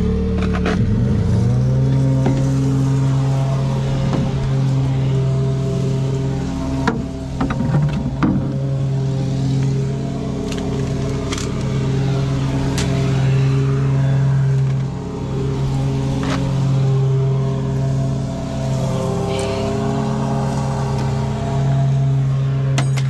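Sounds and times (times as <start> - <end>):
motor running steadily: 0.0 - 23.0
sharp clicks and knocks: 6.8 - 8.6.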